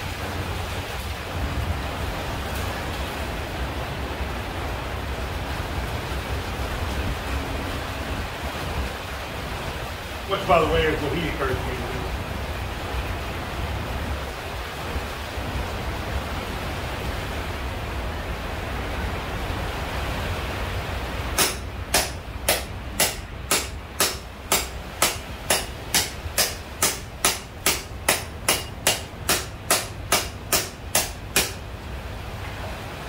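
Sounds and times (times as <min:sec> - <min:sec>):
steady background hiss: 0:00.0 - 0:33.0
hammer striking steel on anvil: 0:21.4 - 0:31.6.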